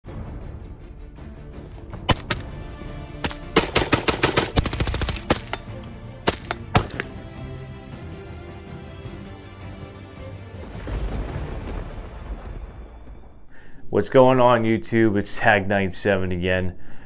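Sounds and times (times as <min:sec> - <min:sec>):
background music: 0:00.0 - 0:13.9
gunshots: 0:03.2 - 0:07.1.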